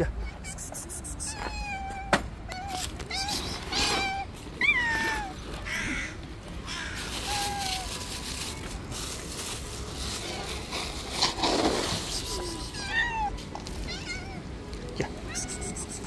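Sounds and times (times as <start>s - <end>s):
cats meowing: 0.1s - 8.8s, 11.8s - 16.0s
cat's harsh rasping cry: 0.2s - 6.2s, 6.8s - 8.1s, 11.1s - 14.5s, 15.1s - 16.0s.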